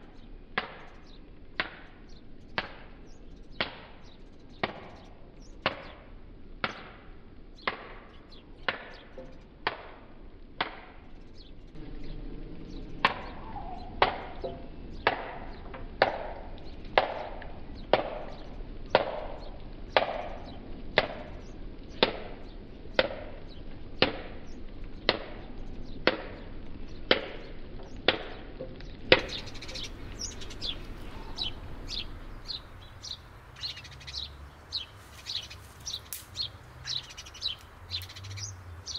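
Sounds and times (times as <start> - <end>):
birds chirping: 0.0 - 9.7, 11.0 - 38.9.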